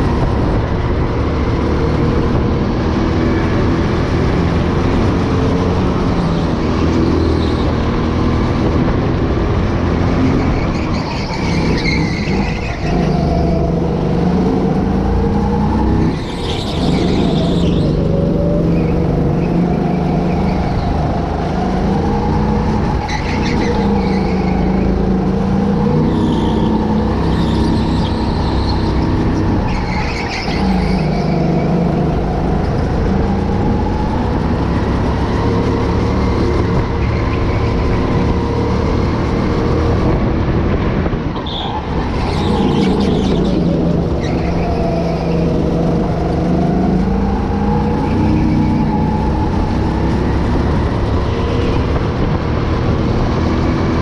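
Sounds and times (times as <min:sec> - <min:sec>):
go-kart engine revving: 0:00.0 - 0:54.0.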